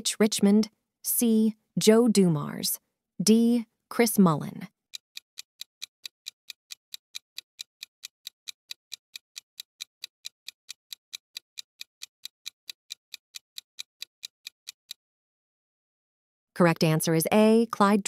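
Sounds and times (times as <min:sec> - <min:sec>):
fast clock ticking: 0:04.9 - 0:15.0.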